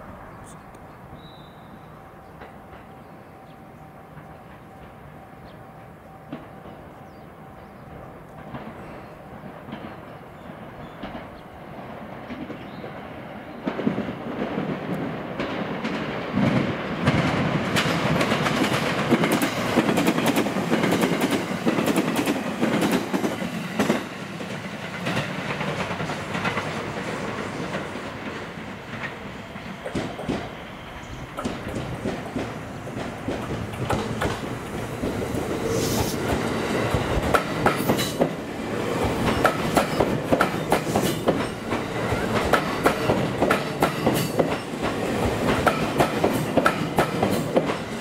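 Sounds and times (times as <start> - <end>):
electric train passing: 0.0 - 48.0.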